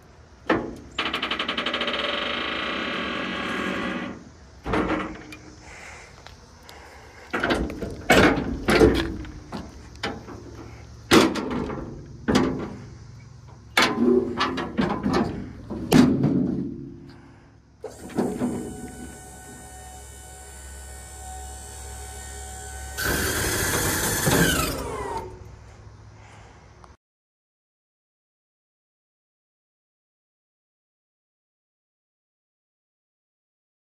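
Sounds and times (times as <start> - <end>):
hydraulic power unit running: 0.6 - 6.0, 17.0 - 25.5
metal platform clanking and banging: 7.4 - 9.3, 13.7 - 17.0.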